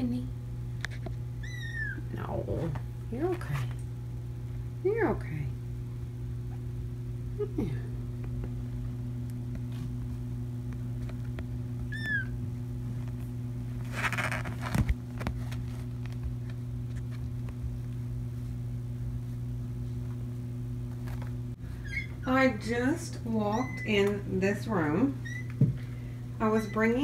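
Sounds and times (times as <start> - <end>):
steady low hum: 0.0 - 27.0
kitten mewing: 1.4 - 2.2, 11.9 - 12.4.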